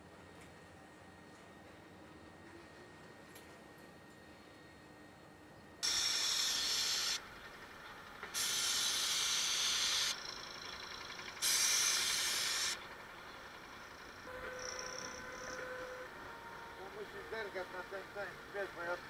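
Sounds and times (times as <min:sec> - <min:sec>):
paint spray gun hissing: 0:05.8 - 0:07.3, 0:08.3 - 0:12.9.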